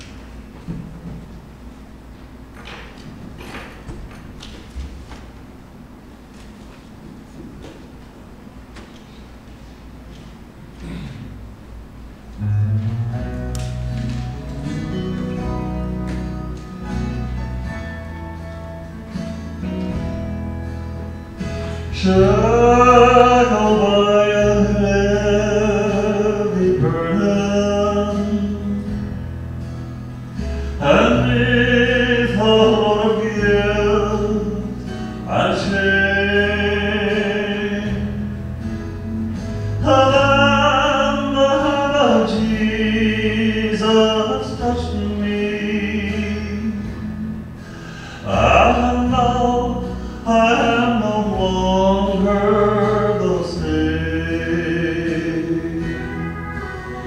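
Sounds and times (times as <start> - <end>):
instrumental accompaniment: 12.4 - 25.8, 52.4 - 57.0
man singing a hymn: 21.6 - 29.3, 30.4 - 39.0, 39.6 - 57.0.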